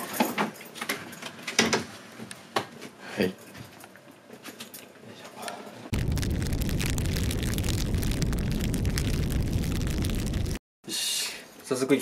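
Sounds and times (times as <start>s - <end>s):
fire burning with crackles: 5.9s - 10.6s.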